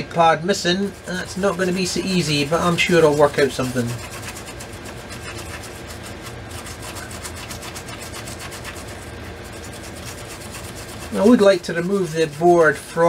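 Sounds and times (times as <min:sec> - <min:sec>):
brush scrubbing circuit board: 0:00.0 - 0:13.0.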